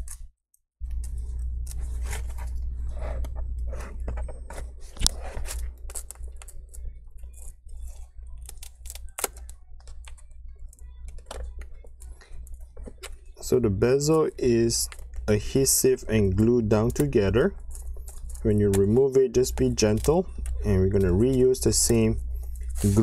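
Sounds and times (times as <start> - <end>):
low steady hum: 0.8 - 23.0
bezel snapping: 8.4 - 10.2.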